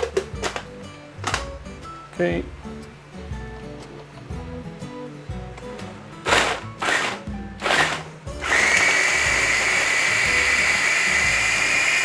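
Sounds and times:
electric food chopper whining: 6.2 - 12.0.

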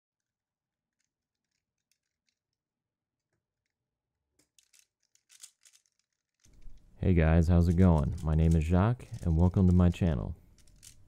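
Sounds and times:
plastic puzzle cube clicking: 0.9 - 2.6, 4.4 - 7.0, 7.6 - 11.0.

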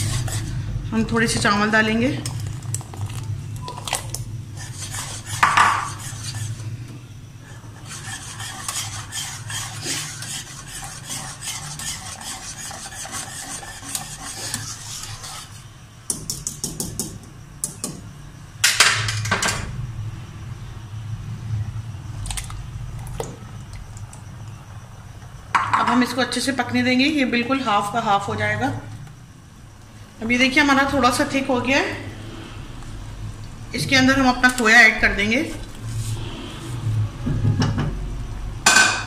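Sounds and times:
whisk scraping in pan: 0.0 - 0.7, 4.5 - 6.7, 7.5 - 15.8
utensils knocking on pan: 5.4 - 5.9.

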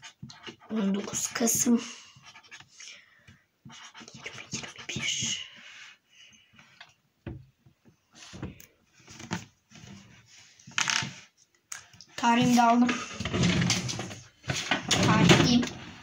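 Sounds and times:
marker scratching on paper: 0.0 - 2.8, 3.6 - 5.5.

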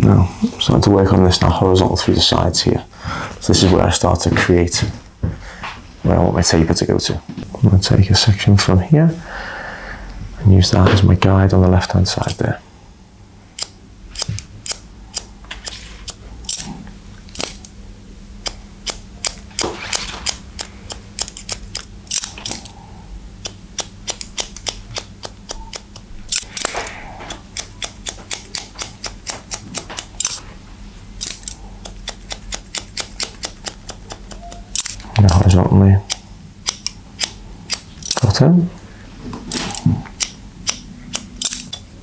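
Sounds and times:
scissors snipping hair: 13.6 - 16.7, 17.3 - 17.7, 18.4 - 22.7, 23.4 - 30.4, 31.2 - 38.3, 39.5 - 41.8.

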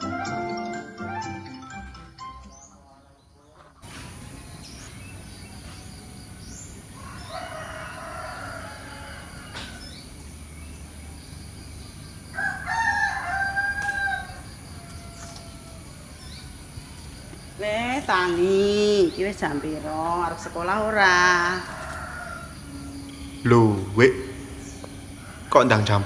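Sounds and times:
rooster crowing: 6.8 - 10.0, 12.3 - 17.0, 19.4 - 26.0.

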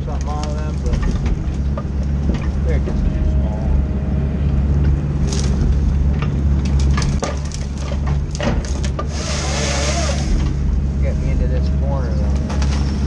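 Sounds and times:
branches cracking and snapping: 0.0 - 3.3, 4.6 - 10.8, 12.2 - 13.0
machine engine humming: 0.0 - 13.0.

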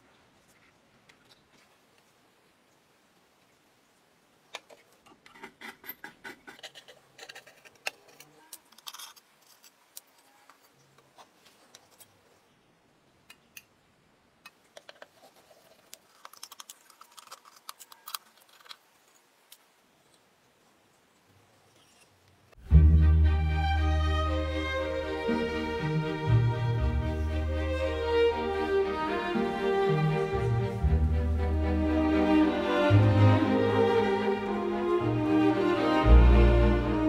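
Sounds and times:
metal parts clicking and scraping: 4.6 - 12.1, 14.8 - 19.3.

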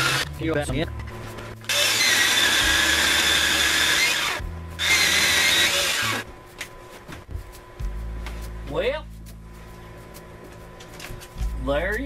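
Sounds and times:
saw cutting log: 0.0 - 0.2, 1.7 - 6.2.

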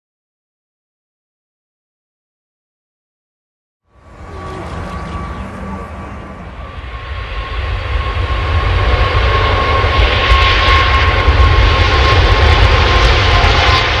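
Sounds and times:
jet airliner passing low: 3.9 - 14.0.

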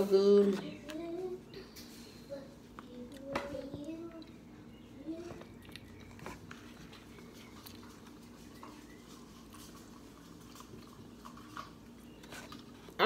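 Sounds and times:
low steady hum: 0.0 - 13.0
quiet chewing: 2.6 - 13.0.

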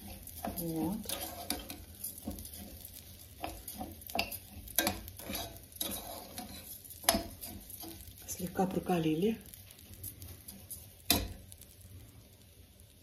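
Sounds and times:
spoon scraping rice in a pot: 0.0 - 8.3
light sizzle: 0.0 - 13.0.

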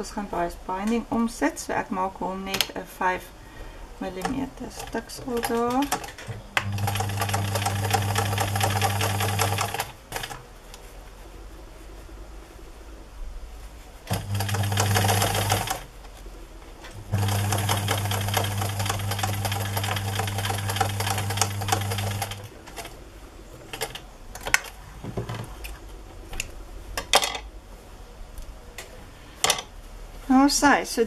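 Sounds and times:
sewing machine stitching: 4.2 - 10.4, 14.1 - 15.9, 17.0 - 23.0.

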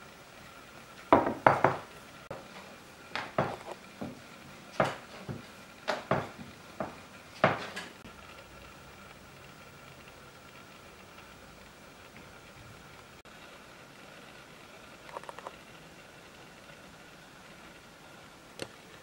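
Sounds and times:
rolling pin knocking on board: 1.2 - 1.9, 3.2 - 4.2, 4.8 - 7.9.

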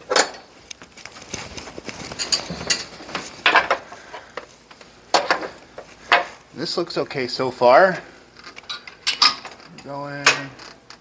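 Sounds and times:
metallic clinks and knocks: 2.1 - 3.8.

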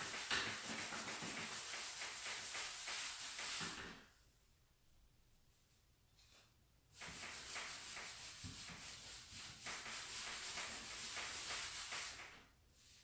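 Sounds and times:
cloth rag rubbing wood: 0.0 - 3.9, 7.0 - 13.0.

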